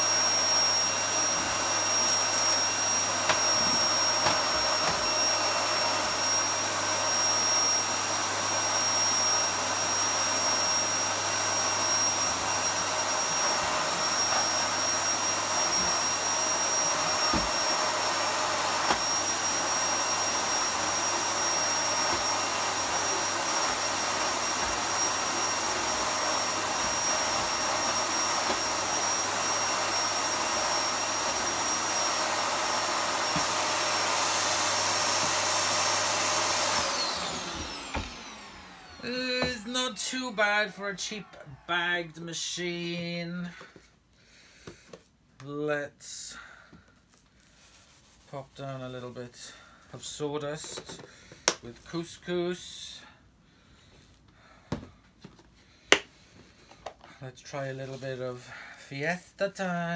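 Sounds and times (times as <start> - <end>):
vacuum cleaner running: 0.0 - 43.8, 48.8 - 53.0
vacuum motor winding down: 0.1 - 39.5.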